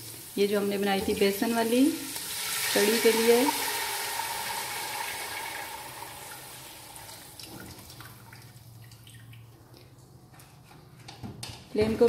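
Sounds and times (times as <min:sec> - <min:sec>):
oil sizzling: 0:00.0 - 0:07.4
batter pouring into pot: 0:02.2 - 0:06.9.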